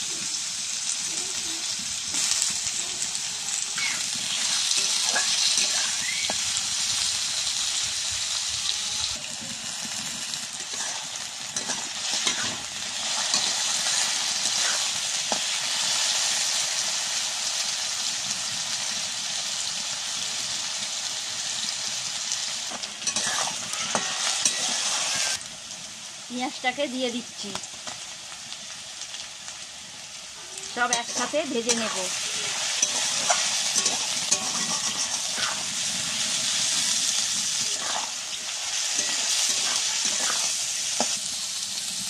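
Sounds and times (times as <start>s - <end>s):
food sizzling in hot oil: 0.0s - 42.0s
metal spatula scraping pan: 4.2s - 6.4s, 10.6s - 15.5s, 23.0s - 25.4s, 30.8s - 35.8s, 37.6s - 41.2s.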